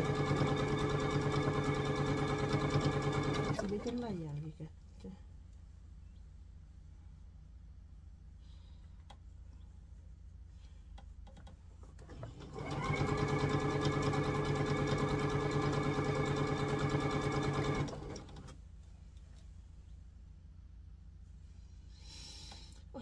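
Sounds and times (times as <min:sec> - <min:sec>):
sewing machine stitching: 0:00.0 - 0:04.1, 0:12.0 - 0:18.6.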